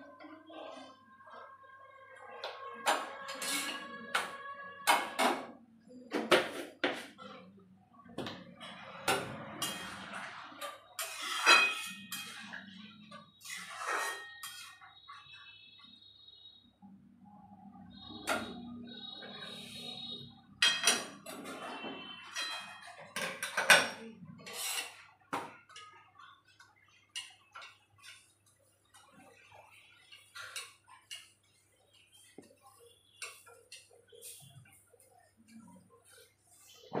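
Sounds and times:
metal utensils clattering: 0:02.8 - 0:05.5, 0:08.6 - 0:14.8, 0:20.6 - 0:25.1
spatula scraping on griddle: 0:11.0 - 0:12.3, 0:13.4 - 0:14.8.

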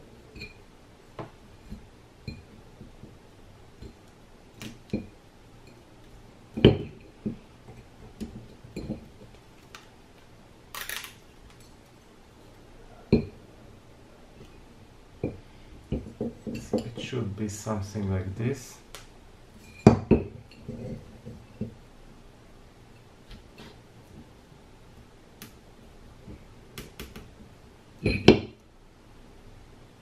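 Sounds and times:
metal parts clicking and knocking: 0:10.7 - 0:11.7.

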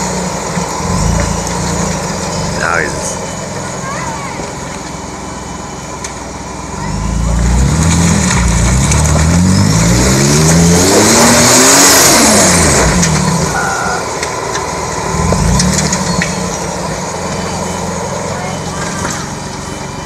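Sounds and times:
engine revving under load: 0:00.0 - 0:03.3, 0:06.7 - 0:17.0.

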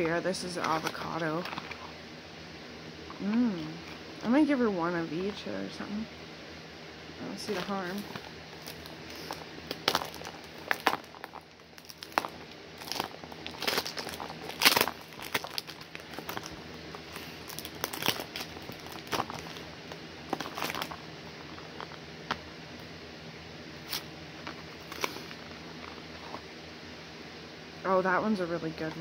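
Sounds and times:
packaging crinkling and rustling: 0:00.5 - 0:01.9, 0:07.4 - 0:22.4, 0:23.8 - 0:26.4.

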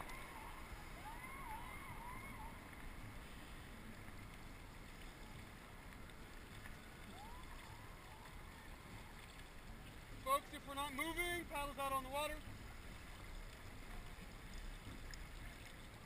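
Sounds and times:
faint rising and falling calls: 0:00.0 - 0:03.1
faint water noise: 0:00.0 - 0:16.0.

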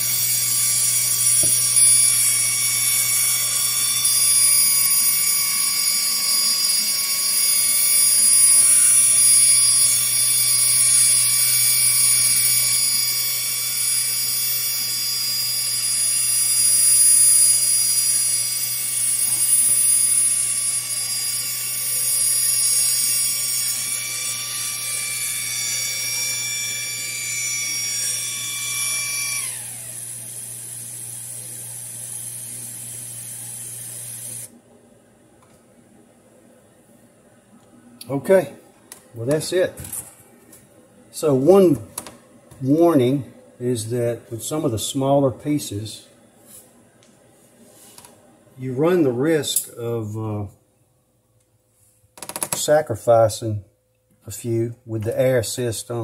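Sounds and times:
stepper motors whining: 0:00.0 - 0:34.5.

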